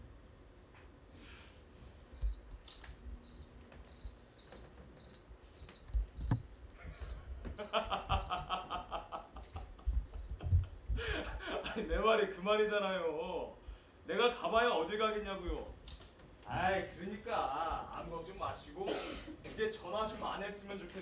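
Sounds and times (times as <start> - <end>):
cricket chirping over speakers: 2.1 - 10.6.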